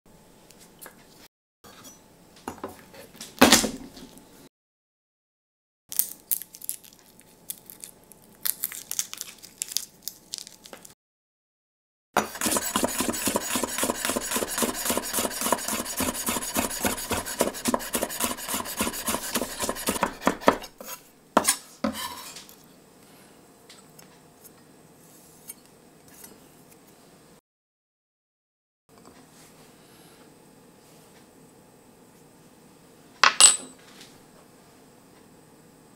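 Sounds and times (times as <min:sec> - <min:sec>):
garlic skin crackling: 0:05.9 - 0:10.9
knife chopping on wooden board: 0:12.2 - 0:20.8.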